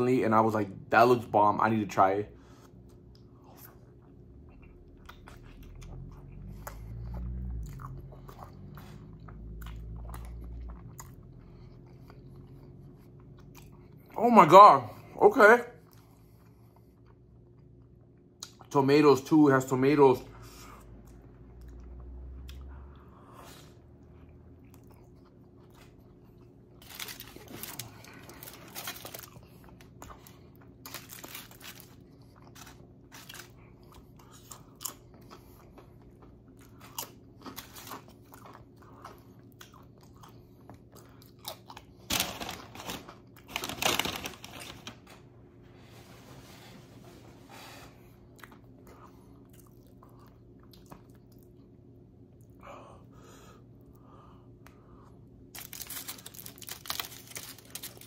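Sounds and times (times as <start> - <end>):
faint steady hum: 0.0 - 58.0
person crunching chips: 26.4 - 35.4, 41.0 - 45.1, 55.4 - 58.0.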